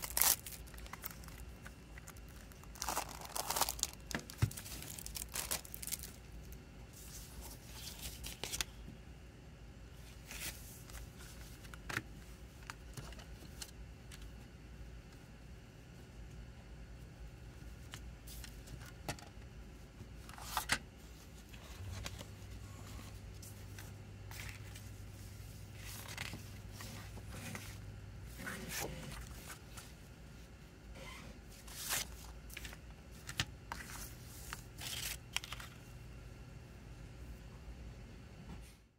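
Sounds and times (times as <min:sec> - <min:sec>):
paper rustling: 0:00.0 - 0:06.2, 0:25.7 - 0:27.8, 0:31.6 - 0:35.8
faint low hum: 0:00.0 - 0:38.9.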